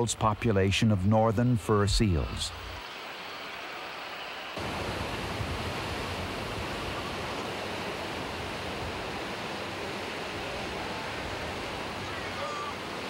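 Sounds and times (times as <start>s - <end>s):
ocean surf on rocks: 0.0s - 13.0s.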